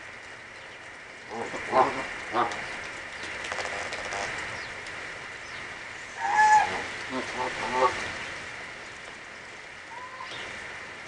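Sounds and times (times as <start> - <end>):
geese calling: 6.1 - 8.0.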